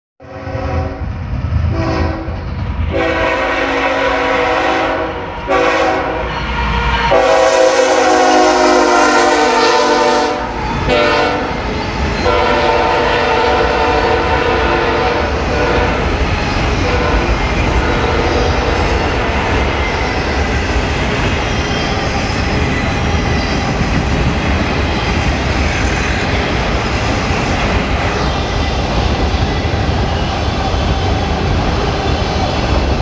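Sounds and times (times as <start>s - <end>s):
locomotive air horn blasts: 0.2s - 1.0s, 1.7s - 11.6s, 12.2s - 16.0s, 16.8s - 18.8s
train rumbling over rails: 0.2s - 33.0s.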